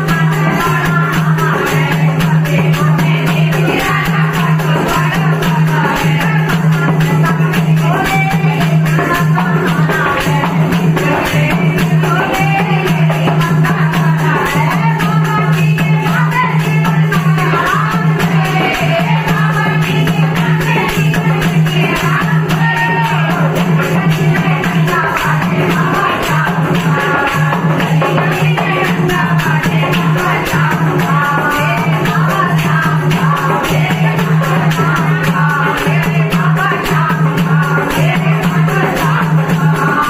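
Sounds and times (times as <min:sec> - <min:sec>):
hand drum: 0:00.0 - 0:40.0
rhythmic hand clapping: 0:00.0 - 0:40.0
women singing in chorus: 0:00.0 - 0:40.0.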